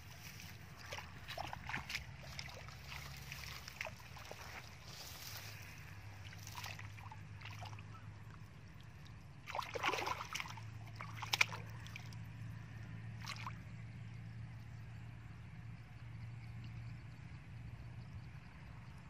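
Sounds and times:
steady low hum: 0.0s - 19.0s
hands splashing in muddy water: 0.1s - 8.0s, 9.0s - 12.2s, 13.2s - 13.6s.

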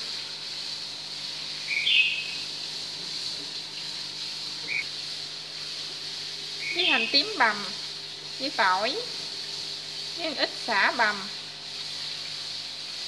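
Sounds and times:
faint steady hiss: 0.0s - 11.4s
small bird chirping: 1.7s - 2.5s, 4.6s - 4.9s, 6.6s - 7.4s.

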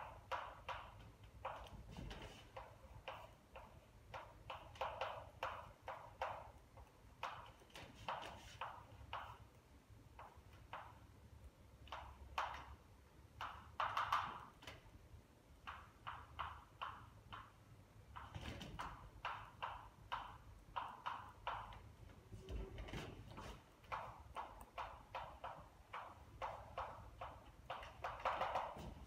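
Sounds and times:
chalk tapping on a blackboard: 0.0s - 9.6s, 18.2s - 21.9s, 23.3s - 29.0s.

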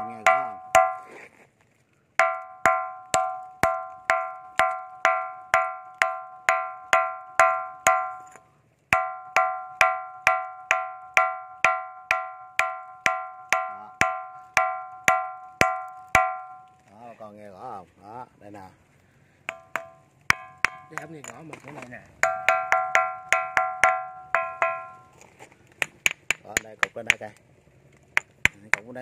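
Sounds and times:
ringing rock being knocked: 0.0s - 1.2s, 2.2s - 16.8s, 19.5s - 21.6s, 22.2s - 25.2s, 28.2s - 29.0s.

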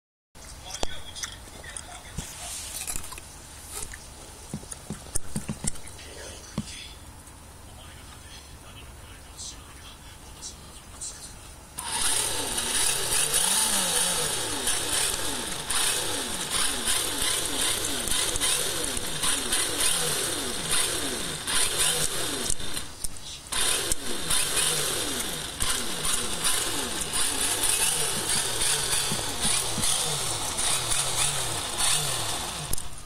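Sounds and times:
rc car engine revving: 11.8s - 33.0s.

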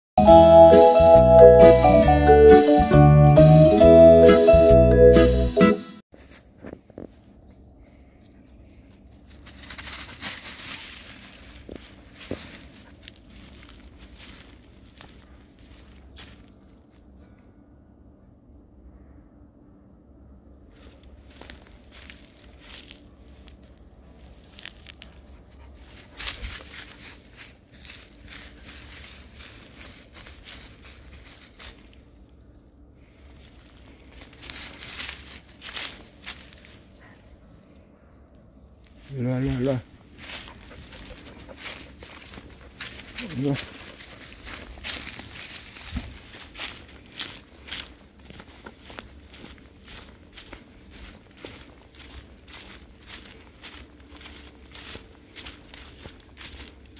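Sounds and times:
footsteps crunching through dry leaves: 6.1s - 7.2s, 8.6s - 17.2s, 20.7s - 37.9s, 38.6s - 56.9s.

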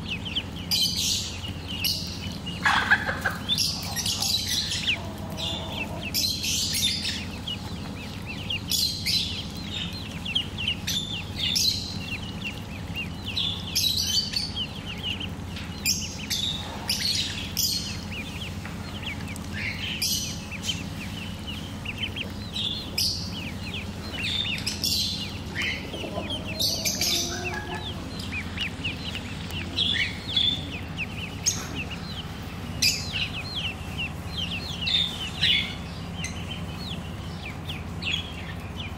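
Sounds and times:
ducklings peeping: 0.0s - 38.9s
steady low hum: 0.0s - 38.9s.

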